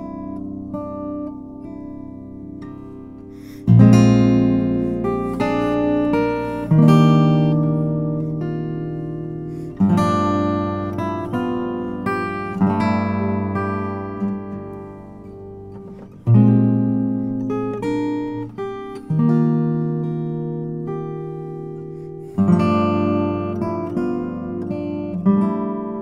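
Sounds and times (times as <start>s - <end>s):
harp guitar played with fingers: 0.0s - 26.0s.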